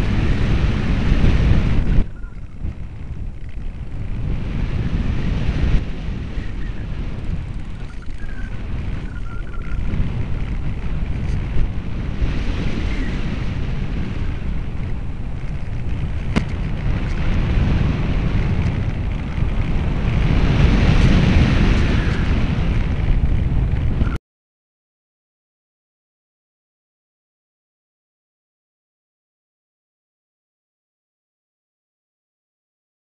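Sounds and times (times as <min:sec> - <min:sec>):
wind buffeting microphone: 0:00.0 - 0:24.2.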